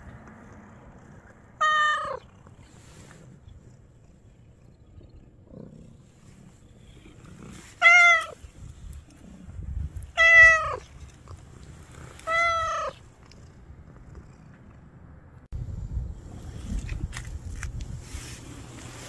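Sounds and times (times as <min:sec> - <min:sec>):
cat meowing: 0:01.6 - 0:02.3, 0:07.8 - 0:08.4, 0:10.1 - 0:10.9, 0:12.2 - 0:13.0.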